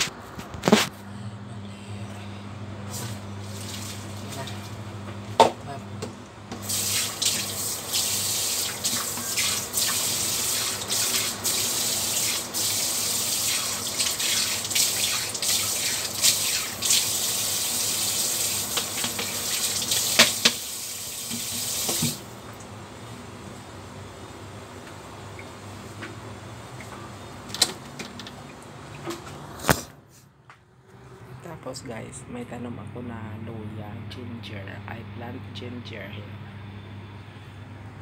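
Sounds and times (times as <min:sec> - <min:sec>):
tap running into sink: 0:18.7 - 0:20.7, 0:21.3 - 0:22.2.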